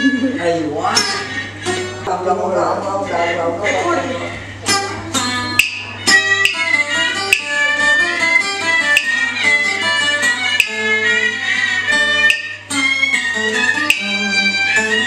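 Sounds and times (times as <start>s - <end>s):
acoustic guitar strumming chords: 0.0s - 15.0s
two-string fiddle bowed melody: 4.1s - 15.0s.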